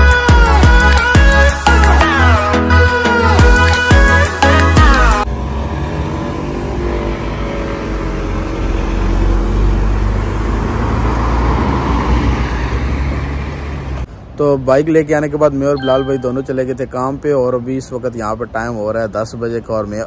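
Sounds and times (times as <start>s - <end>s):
background music: 0.0s - 5.3s, 15.8s - 16.9s.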